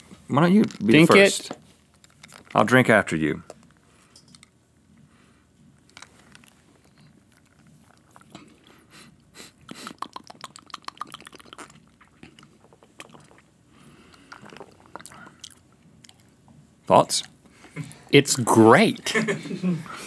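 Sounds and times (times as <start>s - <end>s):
person sipping and swallowing: 6.0s - 16.4s
wet mouth clicks and gulps: 9.6s - 16.5s.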